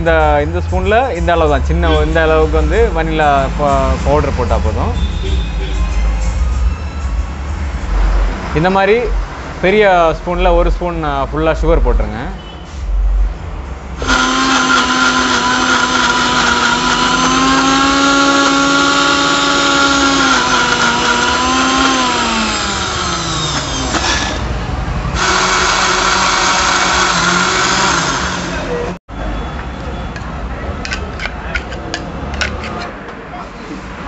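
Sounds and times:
mixer grinder blending: 14.0s - 24.6s, 25.2s - 29.0s.

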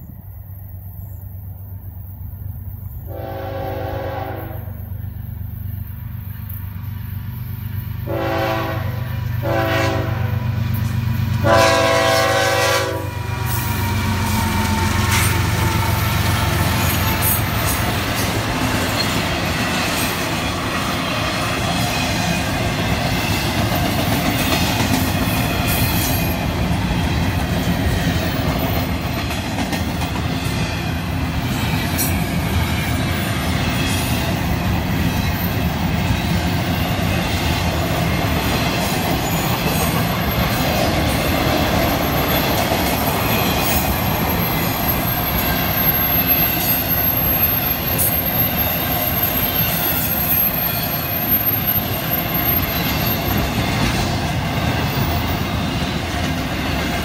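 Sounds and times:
train wheels rolling on rails: 0.0s - 57.0s
locomotive air horn blasts: 3.1s - 4.9s, 8.0s - 10.4s, 11.4s - 13.5s.

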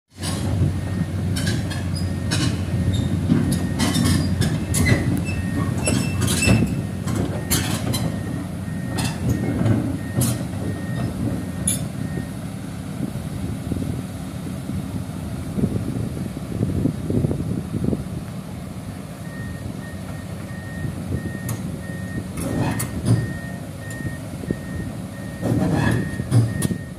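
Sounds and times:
excavator diesel engine under load: 0.1s - 26.9s
steel tracks clanking and squealing: 0.2s - 12.0s, 22.4s - 24.1s, 25.2s - 26.9s.

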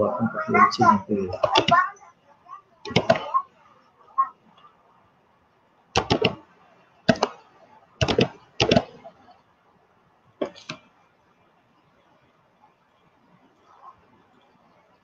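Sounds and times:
sharp clicks: 6.0s - 6.4s, 8.0s - 9.0s.

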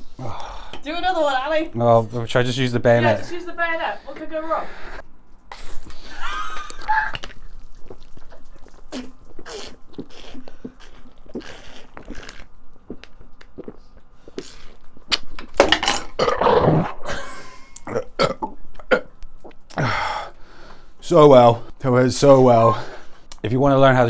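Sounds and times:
man spluttering: 5.5s - 11.5s.

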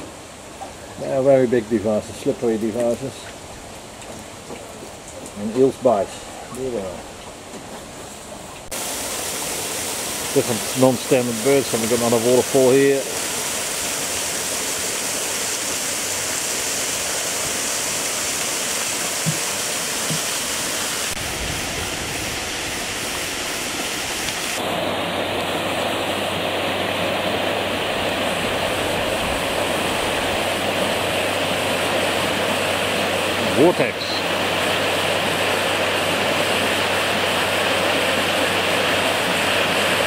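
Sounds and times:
waterfall splashing: 8.6s - 40.0s
fast water pouring through channel: 8.7s - 24.7s, 25.4s - 40.0s.

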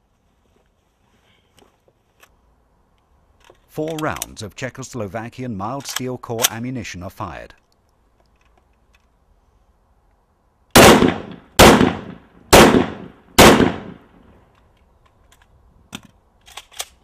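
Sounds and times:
rifle shots echoing: 10.7s - 14.2s.

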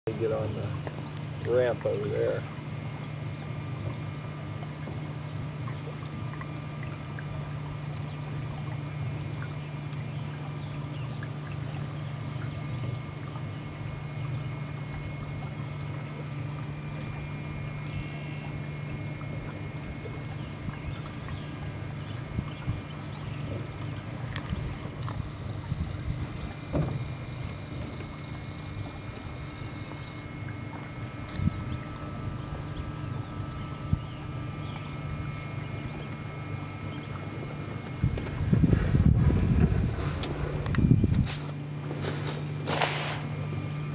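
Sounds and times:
boat motor humming: 0.0s - 43.9s
water gurgling along hull: 0.1s - 43.9s
light knocks on hull: 26.2s - 29.3s.

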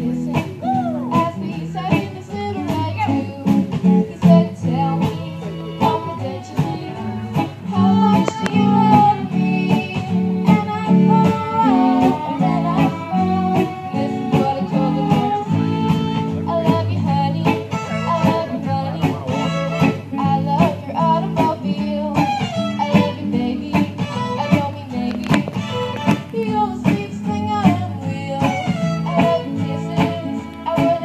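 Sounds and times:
fiddle melody: 0.0s - 31.0s
strummed acoustic guitar: 0.0s - 31.0s.

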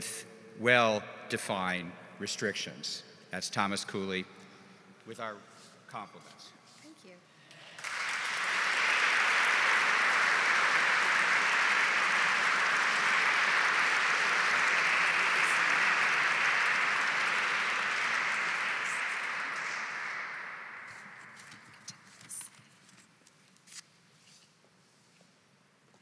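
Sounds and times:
audience applauding: 7.5s - 22.4s.

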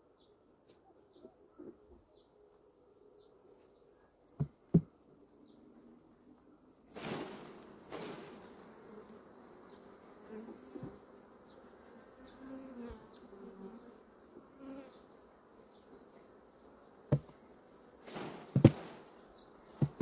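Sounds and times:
bees buzzing: 7.5s - 20.0s.

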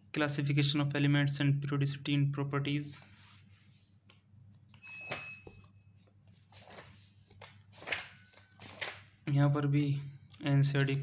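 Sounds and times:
book pages flipping: 3.2s - 11.0s.

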